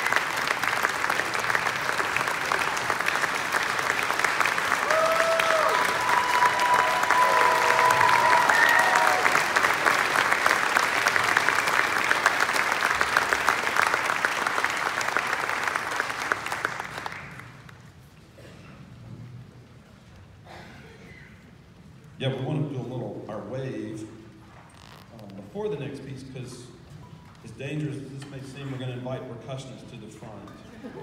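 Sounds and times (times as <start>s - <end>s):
audience applauding: 0.0s - 17.8s.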